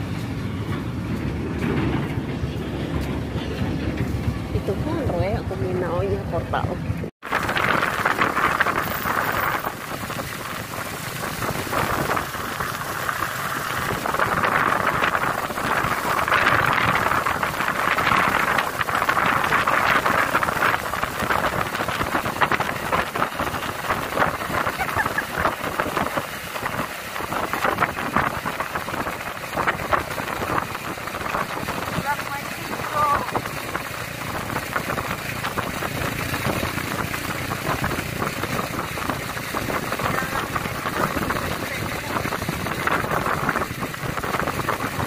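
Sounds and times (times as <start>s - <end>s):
motorcycle engine running: 0.0s - 45.0s
wind rushing: 0.0s - 45.0s.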